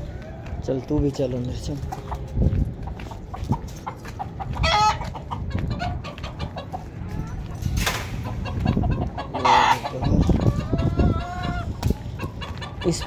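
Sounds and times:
chickens clucking: 0:00.0 - 0:13.0
chicken squawk: 0:04.2 - 0:07.4, 0:08.2 - 0:13.0.

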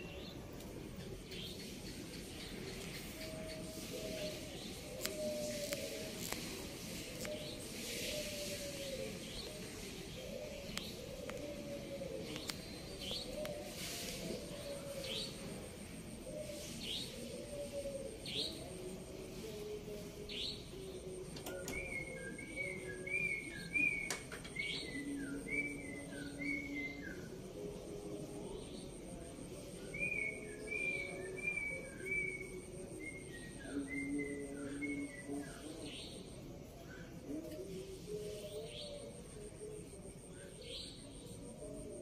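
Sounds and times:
doves cooing: 0:00.0 - 0:42.0
bird singing whistled notes: 0:21.5 - 0:27.3, 0:29.9 - 0:36.2.

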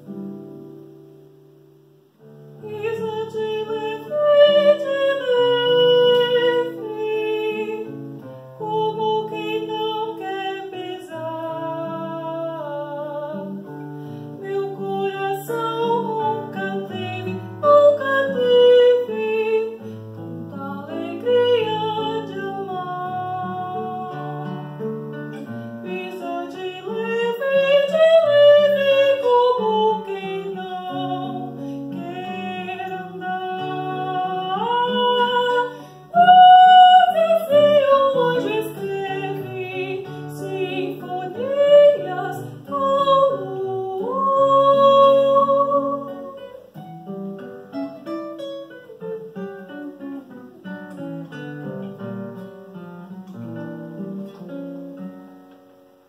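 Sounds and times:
classical guitar: 0:00.0 - 0:56.0
woman singing: 0:02.6 - 0:46.8.

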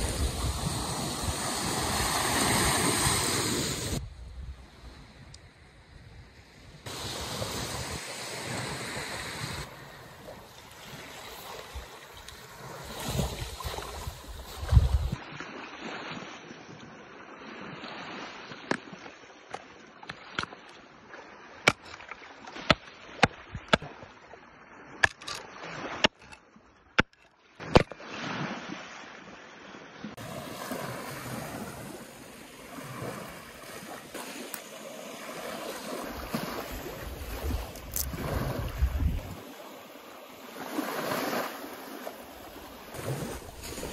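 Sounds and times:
waves washing onto shore: 0:00.0 - 0:04.0, 0:06.8 - 0:21.7, 0:27.6 - 0:43.9
wind on microphone: 0:00.0 - 0:10.4, 0:12.6 - 0:15.2, 0:35.9 - 0:39.4
axe splitting wood: 0:21.6 - 0:22.1.

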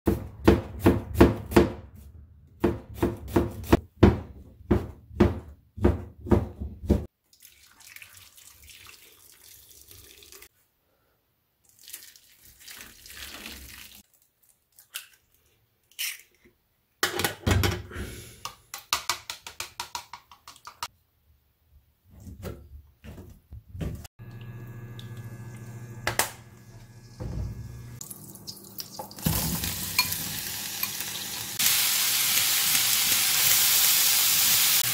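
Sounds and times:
water pouring from a kettle: 0:07.2 - 0:10.5, 0:11.6 - 0:14.1
induction cooktop hum: 0:22.2 - 0:34.9
oil sizzling in a pan: 0:26.6 - 0:34.9.

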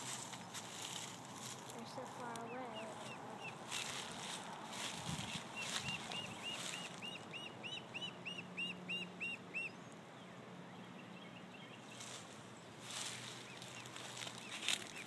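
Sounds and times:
duckling peeping: 0:01.6 - 0:09.8, 0:12.9 - 0:15.0.

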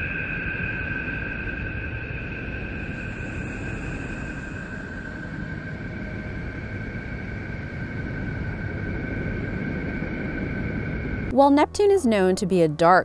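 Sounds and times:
steady whistling tones: 0:00.0 - 0:13.0.

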